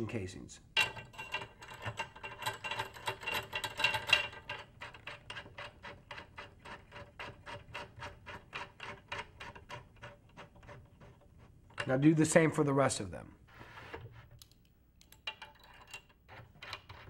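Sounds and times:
metal rod rattling against drum hoop: 0.8s - 11.1s.

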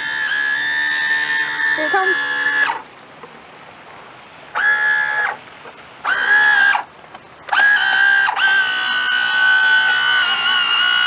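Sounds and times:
electric motor whining: 0.0s - 2.8s, 4.5s - 5.4s, 6.0s - 6.9s, 7.5s - 11.0s.

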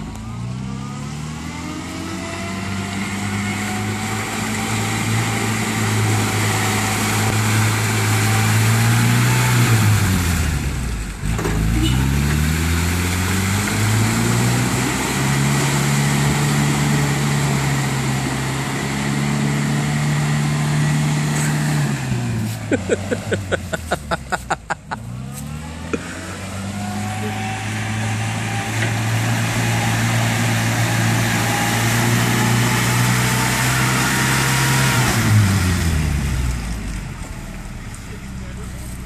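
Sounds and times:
truck engine revving: 0.0s - 39.0s.

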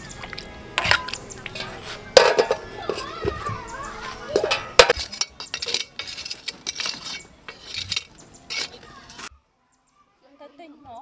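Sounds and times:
metal poker knocking charcoal: 0.3s - 9.3s
metal pot lid clinking: 0.8s - 3.1s, 4.3s - 8.8s.

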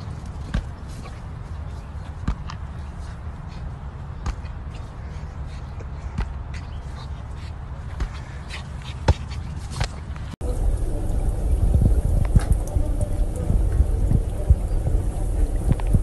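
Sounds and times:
low rumble: 10.4s - 16.0s.

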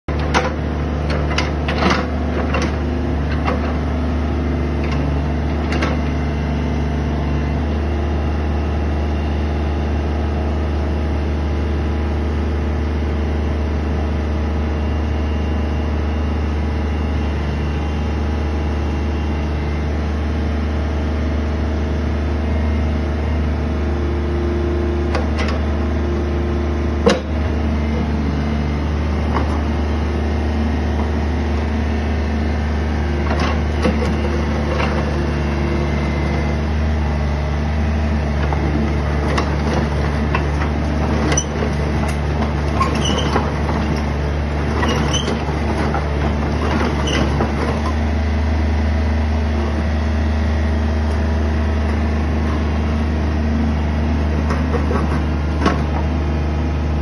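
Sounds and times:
excavator diesel engine humming: 0.1s - 57.0s
sharp clicks and knocks: 27.0s - 27.4s.

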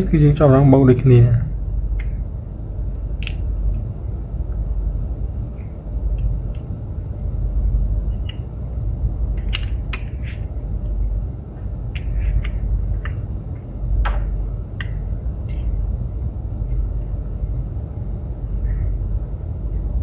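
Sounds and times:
low background rumble: 0.0s - 20.0s
hands clicking and tapping electronics: 3.2s - 3.9s, 8.2s - 8.5s, 9.3s - 11.0s, 11.6s - 15.7s.

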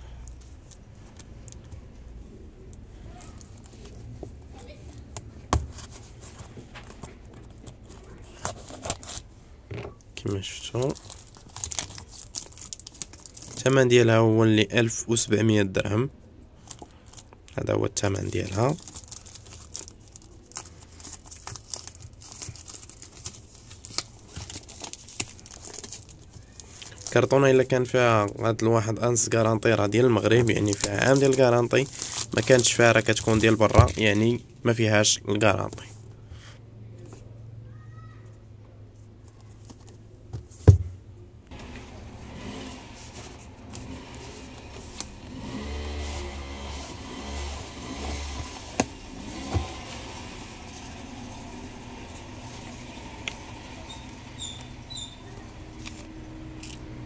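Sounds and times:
plastic wrap crinkling: 10.2s - 13.9s, 18.0s - 34.5s
vehicle engine droning: 41.5s - 57.0s.

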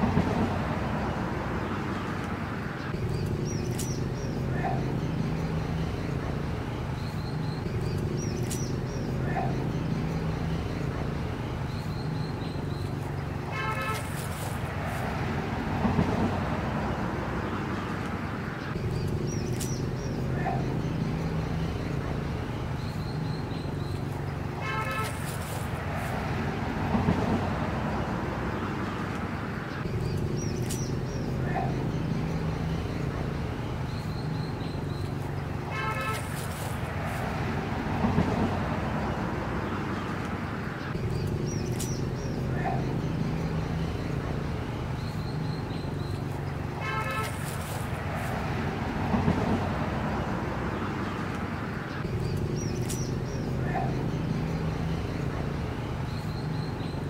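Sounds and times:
high bird chirps: 2.9s - 6.2s, 6.9s - 14.3s, 29.8s - 33.2s, 52.0s - 55.3s.

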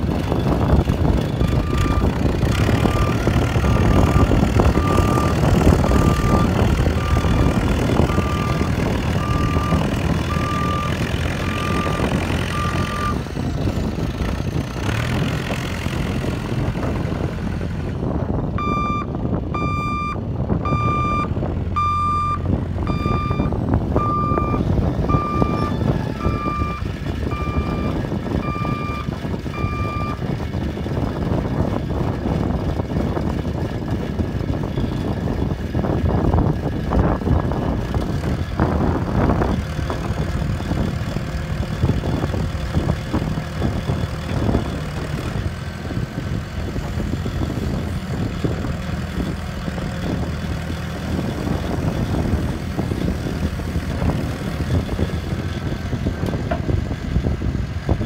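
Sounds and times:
diesel engine running: 0.0s - 58.0s
reverse alarm beeping: 18.6s - 30.2s.

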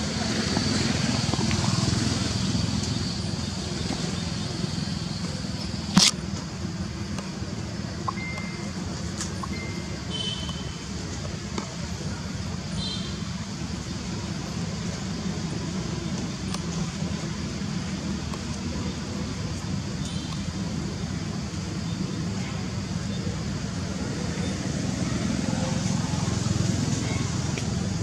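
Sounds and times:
faint high chirps: 8.0s - 10.8s.

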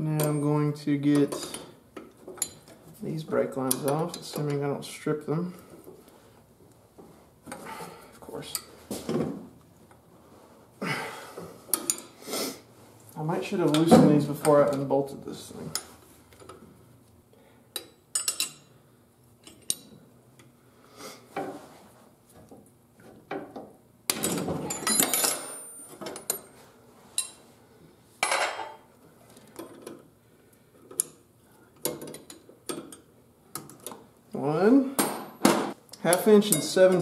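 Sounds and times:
wrenches clinking on metal: 17.8s - 18.7s, 24.1s - 26.6s
metal tools clattering: 24.2s - 26.6s.

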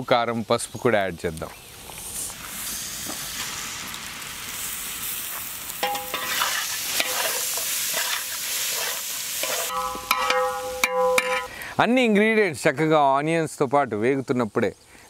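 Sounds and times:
onions sizzling in hot oil: 1.6s - 11.6s
ladle scraping metal pot: 5.8s - 11.5s.

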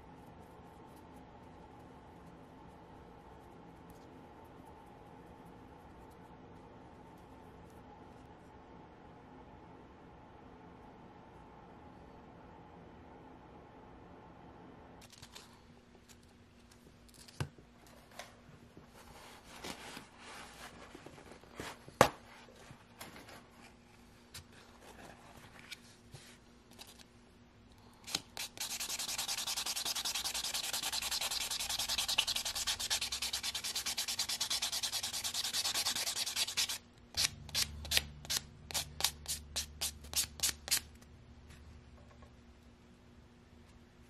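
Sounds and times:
nail buffer scrubbing fingernail: 28.1s - 40.8s.

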